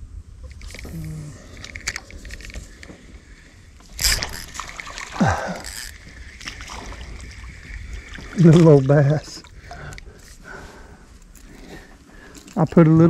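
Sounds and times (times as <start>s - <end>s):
hook splashing into water: 3.9s - 7.2s.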